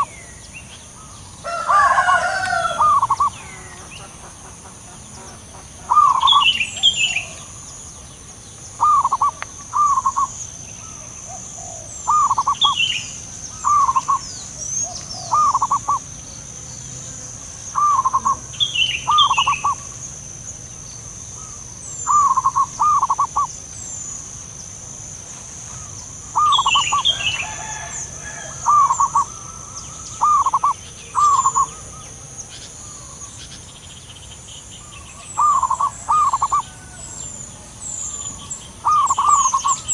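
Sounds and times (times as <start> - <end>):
doves cooing: 1.0 - 7.7, 8.8 - 16.2, 17.0 - 20.0, 21.4 - 23.5, 25.6 - 33.4, 34.9 - 39.9.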